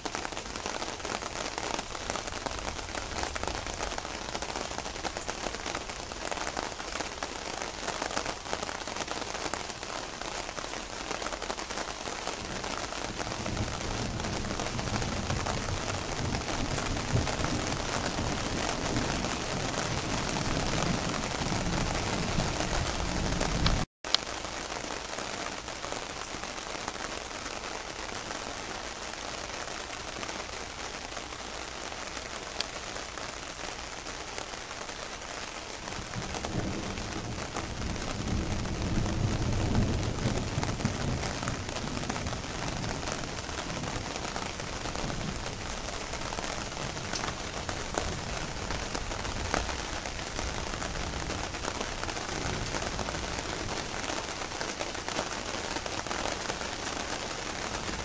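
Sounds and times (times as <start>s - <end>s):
rain hissing on surfaces: 0.0s - 58.0s
rolling thunder: 12.4s - 23.8s, 35.9s - 54.1s.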